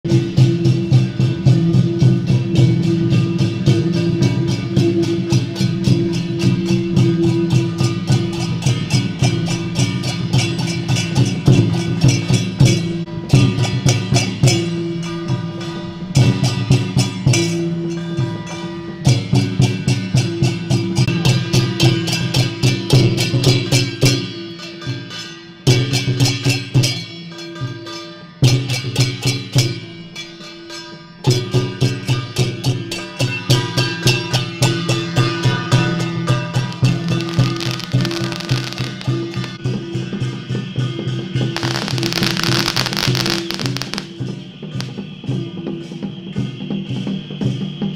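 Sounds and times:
hand cymbals and gongs: 0.1 - 47.9
drum beating: 36.8 - 39.6, 41.6 - 44.2.

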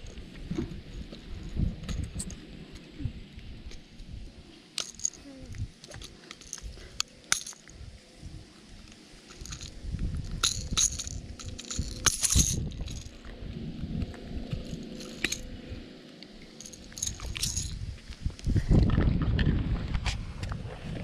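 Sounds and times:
low rumbling handling noise: 0.0 - 21.0
light clicks and clinks: 4.8 - 7.7, 9.3 - 13.2, 16.2 - 17.8.

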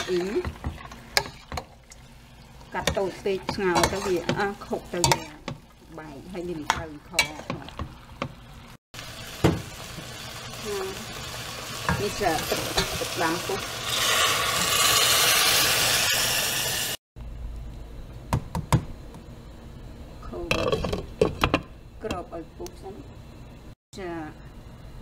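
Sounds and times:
light sizzling: 0.0 - 17.0
water hissing in hot pot: 0.0 - 17.0
metal spoon scraping and clinking: 3.8 - 4.3.

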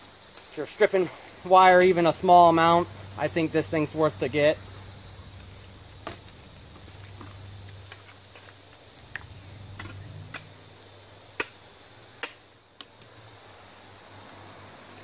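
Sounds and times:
high hiss: 0.0 - 15.0.

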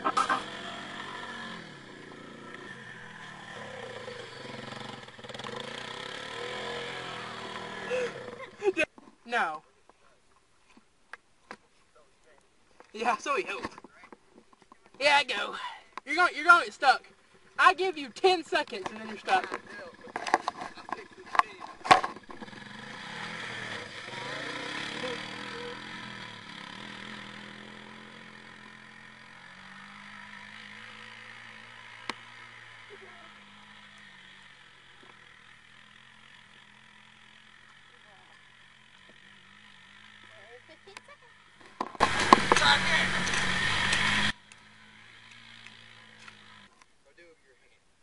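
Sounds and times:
quad bike engine pulling away: 0.0 - 8.9, 17.6 - 46.8
person shouting: 15.0 - 15.9.

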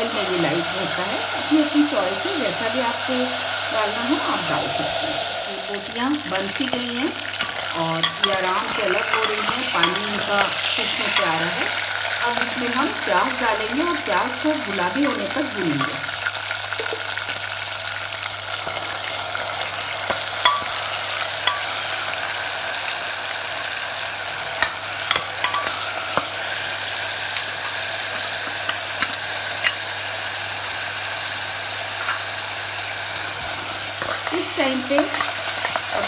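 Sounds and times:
meat sizzling in hot oil: 0.0 - 36.0.

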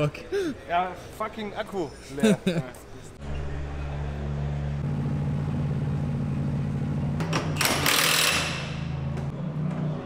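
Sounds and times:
air impact wrench burst: 7.6 - 8.8.

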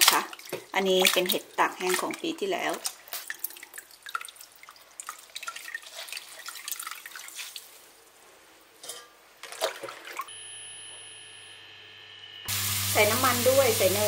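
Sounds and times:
water splashing and dripping: 0.0 - 8.2, 9.4 - 10.3
steady hum: 10.3 - 14.0.

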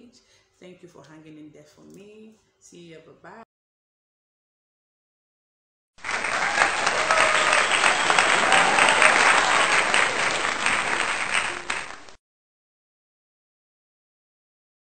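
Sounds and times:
crowd applause: 6.0 - 12.2.

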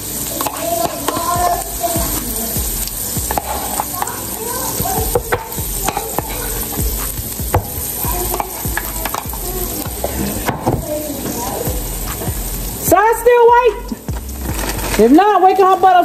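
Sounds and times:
batter sizzling on griddle: 0.0 - 16.0.

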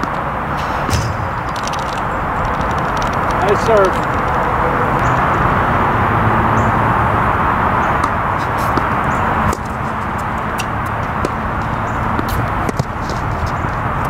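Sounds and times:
outdoor background rush: 0.0 - 14.0
tennis ball clicks and taps: 8.0 - 13.6.

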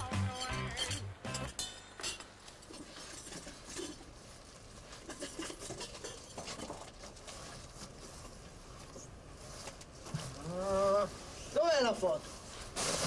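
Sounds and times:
cardboard and objects rustling: 2.6 - 10.6, 12.2 - 13.0.

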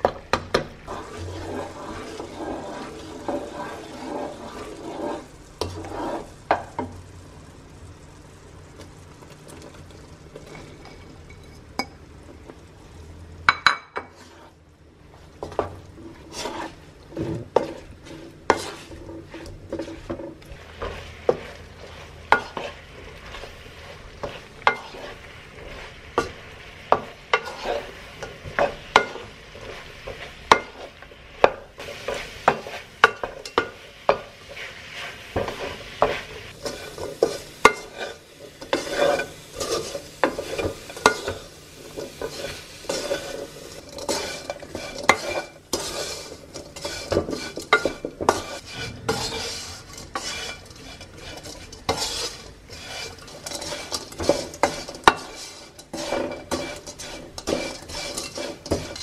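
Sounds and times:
light sizzle: 0.0 - 59.0
spatula scraping wok: 0.8 - 7.0, 14.0 - 59.0
spatula knocking pan: 26.1 - 29.3, 30.0 - 34.3.

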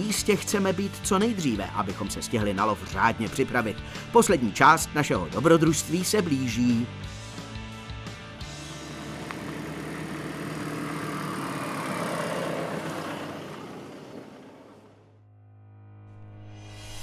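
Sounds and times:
car driving past: 8.4 - 15.2.

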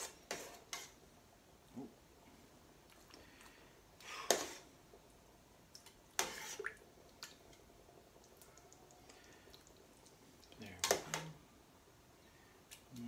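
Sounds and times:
spoon scraping thick chili: 0.0 - 1.0, 6.2 - 6.7.

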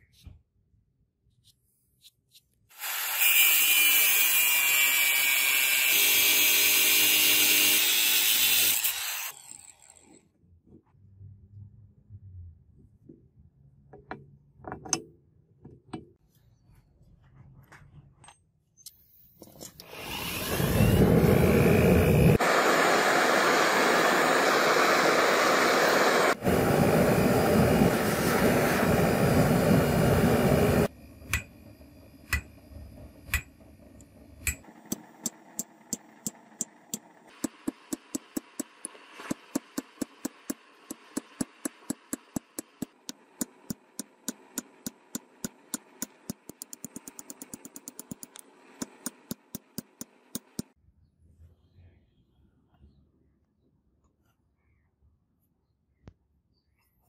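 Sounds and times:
forge burner rushing: 19.9 - 38.4
hammer striking steel on anvil: 31.3 - 31.5, 32.3 - 32.5, 34.4 - 38.8.

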